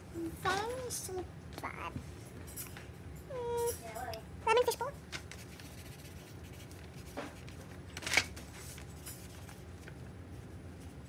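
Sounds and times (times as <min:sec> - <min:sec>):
paper rustles: 0:05.2 - 0:11.0.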